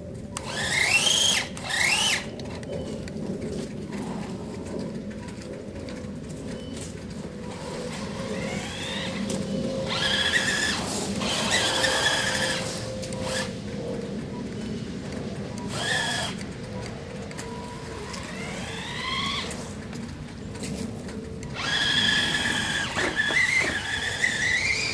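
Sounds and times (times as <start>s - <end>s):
electric motor whining: 0.3s - 4.2s, 6.4s - 14.0s, 15.5s - 20.1s, 21.4s - 24.9s.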